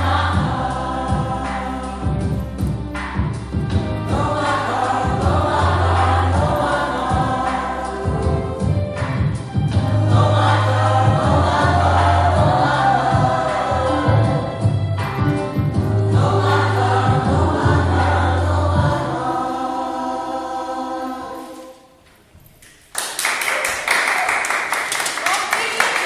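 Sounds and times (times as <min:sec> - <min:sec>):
girls' choir singing: 0:00.0 - 0:14.9, 0:15.5 - 0:22.0
people clapping: 0:22.6 - 0:26.0.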